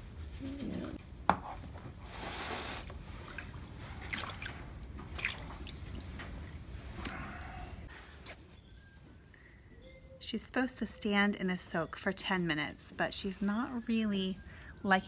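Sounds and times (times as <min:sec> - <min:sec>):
water splashing in tub: 0:03.2 - 0:06.1.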